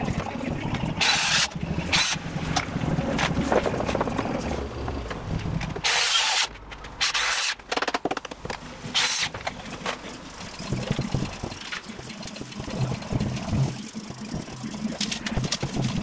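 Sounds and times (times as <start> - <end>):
low engine-like rumble: 0.0 - 5.8
power tool hissing bursts: 5.8 - 7.6.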